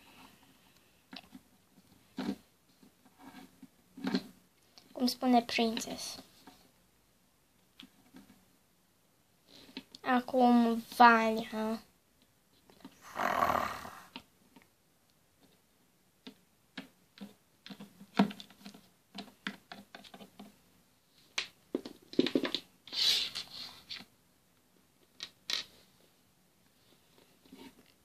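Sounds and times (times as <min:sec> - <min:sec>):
plastic toys clicking on wood: 0:16.2 - 0:20.5.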